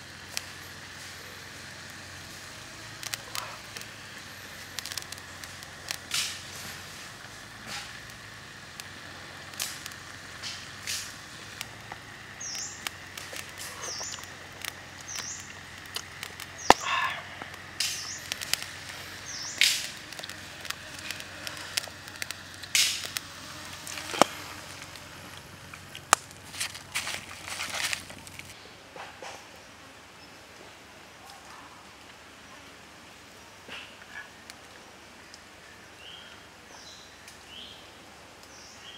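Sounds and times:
oil popping and crackling: 0.0 - 28.6
bird chirping: 12.3 - 13.0, 13.7 - 25.1
egg sizzling in oil: 17.4 - 26.4.

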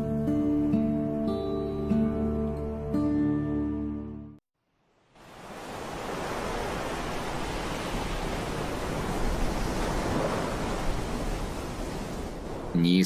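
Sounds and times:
ocean waves breaking: 4.9 - 13.0.

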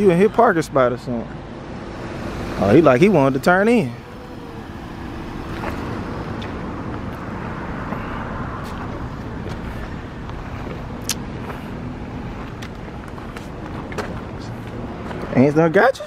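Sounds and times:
car engine running: 1.2 - 15.5.

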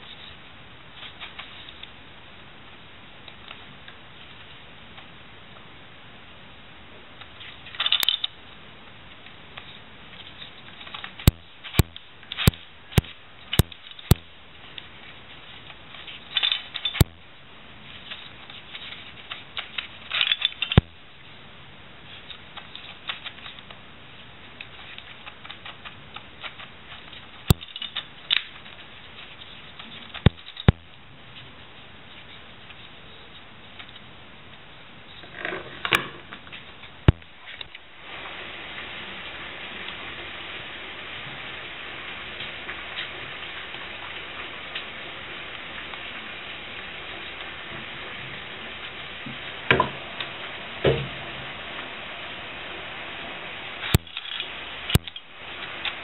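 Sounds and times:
sharp plastic clicks: 10.8 - 14.9, 16.4 - 17.3, 18.1 - 21.0, 24.6 - 28.8, 29.7 - 31.0, 53.9 - 56.0.

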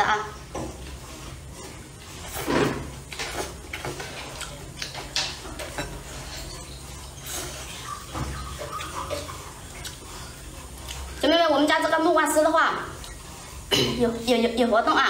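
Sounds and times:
slurping and chewing: 0.8 - 11.2, 12.8 - 13.8.

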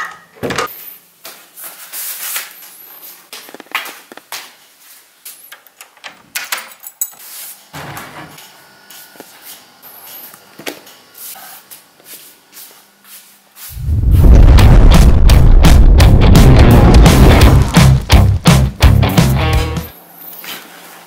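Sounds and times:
loud thud: 13.8 - 18.4.

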